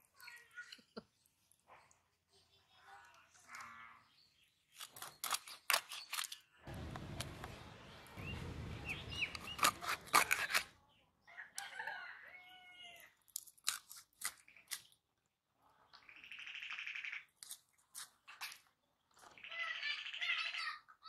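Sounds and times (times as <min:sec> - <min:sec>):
fish being cut on blade: 0:09.4 - 0:10.7
rooster crowing: 0:11.3 - 0:13.1.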